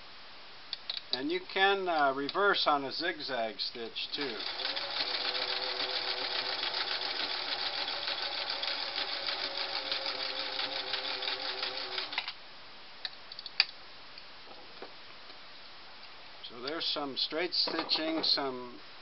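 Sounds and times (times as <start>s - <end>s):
sewing machine clattering: 4.2s - 12.3s.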